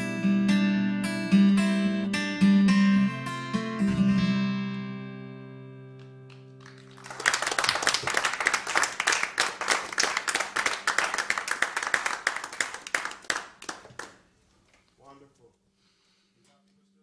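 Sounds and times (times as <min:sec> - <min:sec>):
acoustic guitar chord ringing: 0:00.0 - 0:06.6
audience applause: 0:06.6 - 0:14.2.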